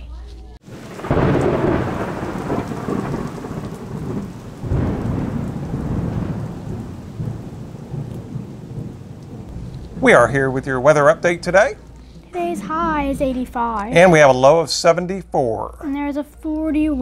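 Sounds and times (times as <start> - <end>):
rolling thunder: 0.6 - 13.5
steady rain: 0.6 - 15.2.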